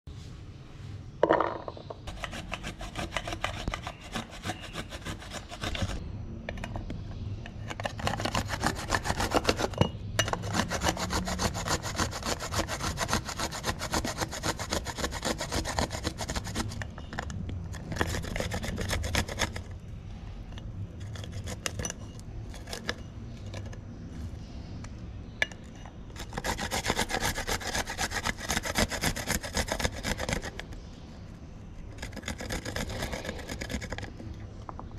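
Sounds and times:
garlic rasping on metal grater: 2.1 - 6.0, 7.8 - 16.9, 26.2 - 30.7, 31.9 - 34.0.

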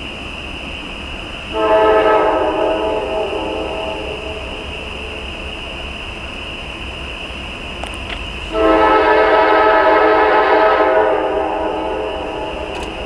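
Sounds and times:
locomotive air horn: 1.5 - 4.6, 8.5 - 12.6.

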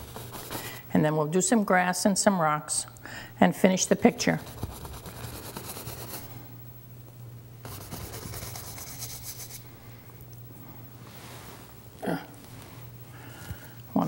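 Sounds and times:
paintbrush scratching on canvas: 4.3 - 6.2, 7.6 - 9.6.

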